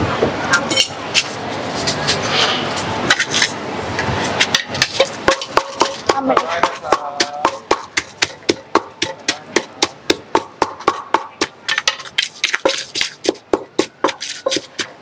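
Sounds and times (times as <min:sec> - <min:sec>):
wooden pestle pounding in mortar: 0:04.4 - 0:15.0.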